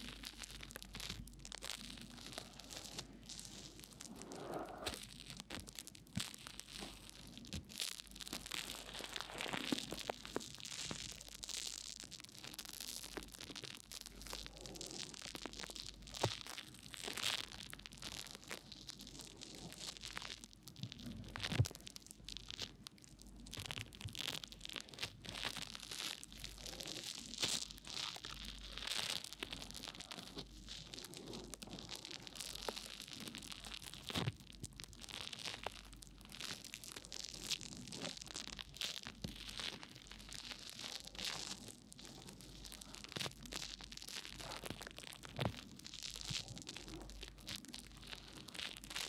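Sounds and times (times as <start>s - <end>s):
brush crackling foam on microphone: 0.0s - 22.6s.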